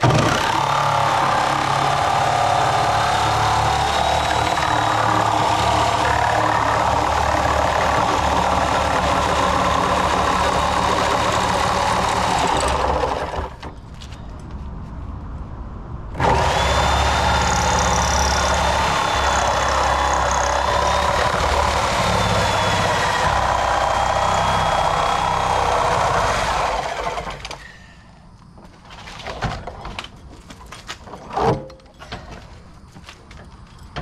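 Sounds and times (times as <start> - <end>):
reciprocating saw cutting steel: 16.2 - 27.7.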